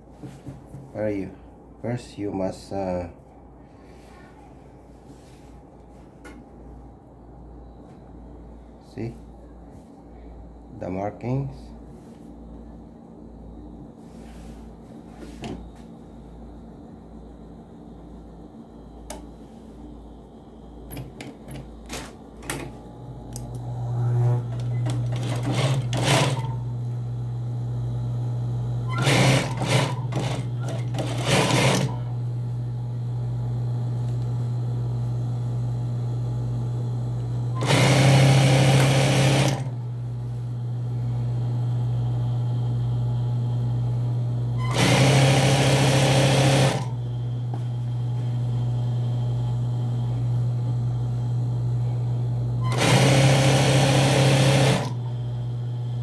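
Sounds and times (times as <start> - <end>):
sewing machine motor humming: 20.9 - 27.0, 28.2 - 32.5, 33.9 - 56.0
sewing machine needle stitching: 24.3 - 26.6, 28.9 - 32.0, 37.6 - 39.7, 44.6 - 47.0, 52.6 - 55.0.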